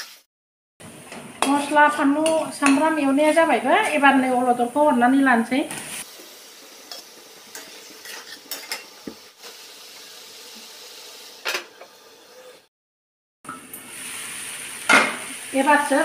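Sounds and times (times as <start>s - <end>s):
low sizzle of frying: 0.8s - 12.7s, 13.5s - 16.0s
metal spatula scraping pan: 1.4s - 4.2s, 6.9s - 8.9s.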